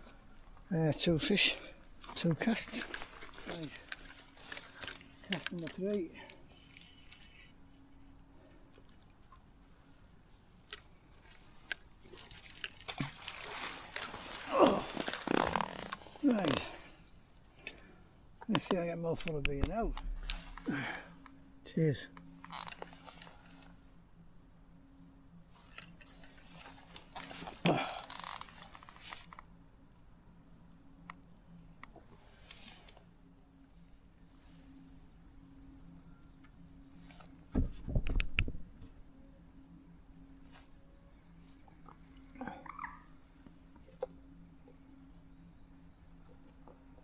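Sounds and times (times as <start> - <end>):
rustling and crinkling: 1.8 - 7.7, 9.5 - 17.1, 18.4 - 21.3, 22.2 - 23.8, 25.5 - 29.6, 31.9 - 33.2, 40.3 - 42.1
high small bird chirps: 42.6 - 43.2.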